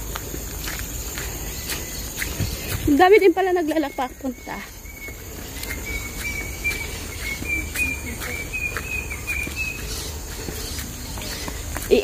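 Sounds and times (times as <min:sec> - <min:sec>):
footsteps on dirt trail: 0:00.0 - 0:12.0.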